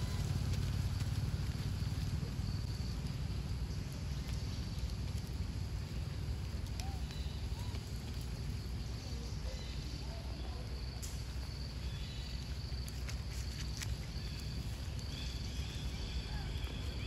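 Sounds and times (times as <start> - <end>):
low rumble: 0.0 - 9.4.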